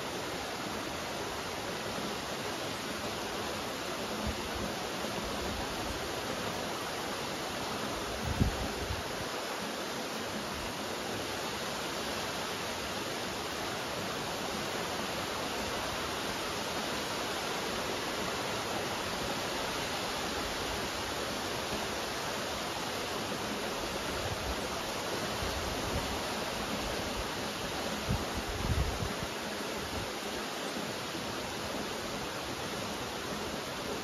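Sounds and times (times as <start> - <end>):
rain falling: 0.0 - 34.0.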